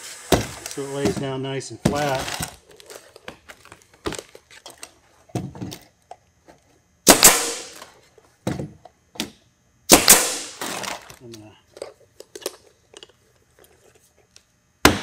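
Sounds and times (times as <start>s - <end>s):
nail gun firing: 7.1s - 7.8s, 9.9s - 11.0s.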